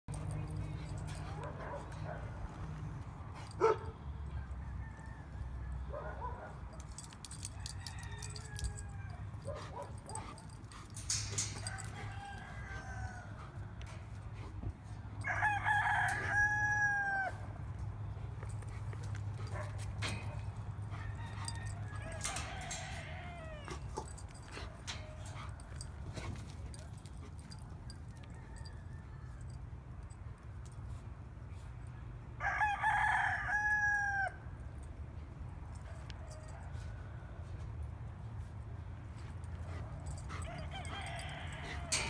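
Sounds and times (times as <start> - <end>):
rooster crowing: 4.2 - 6.0, 7.0 - 9.6, 11.2 - 13.9, 15.2 - 17.6, 20.9 - 24.3, 28.0 - 29.6, 32.4 - 34.5, 40.2 - 42.0.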